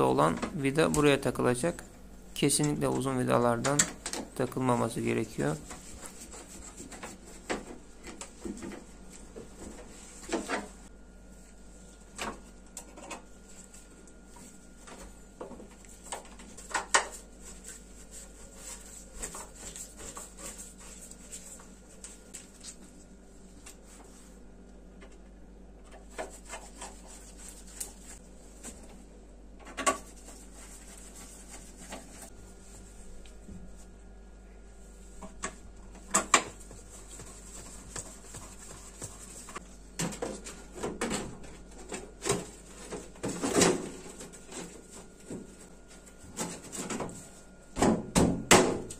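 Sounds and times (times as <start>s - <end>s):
hands rubbing and scraping: 5.2s - 8.5s, 15.7s - 24.4s, 26.0s - 28.8s, 30.0s - 33.1s.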